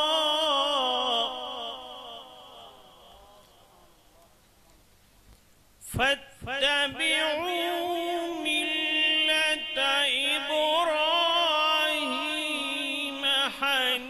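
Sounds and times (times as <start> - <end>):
man reciting melodically: 0.0 - 4.4, 5.8 - 14.0.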